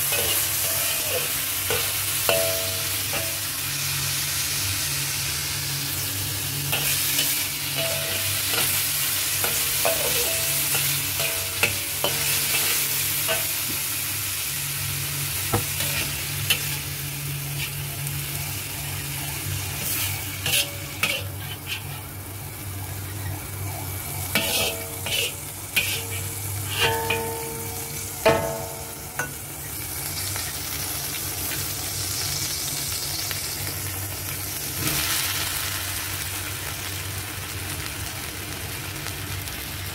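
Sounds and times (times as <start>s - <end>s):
metal spatula scraping pan: 0.0s - 3.5s, 6.7s - 13.8s, 15.6s - 16.9s, 19.7s - 22.1s, 24.3s - 29.4s
meat sizzling in oil: 0.0s - 39.9s.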